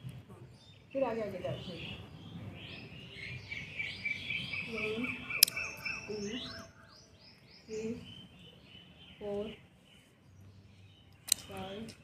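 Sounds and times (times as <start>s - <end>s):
birds chirping and singing: 0.0s - 12.0s
sharp click: 5.4s - 5.6s, 11.1s - 12.0s.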